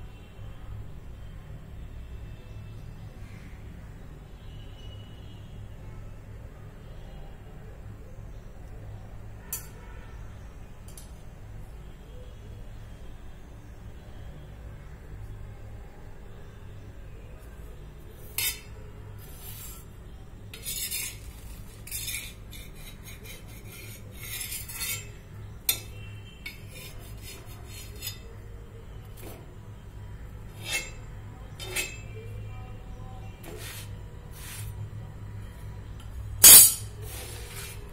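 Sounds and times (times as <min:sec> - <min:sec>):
metal kitchenware clinking: 0:09.5 - 0:09.8, 0:23.1 - 0:28.3, 0:30.5 - 0:32.2, 0:36.4 - 0:37.4.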